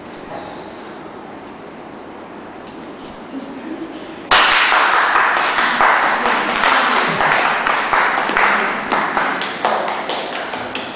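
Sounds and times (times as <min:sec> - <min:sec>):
audience applause: 0:04.3 - 0:10.9.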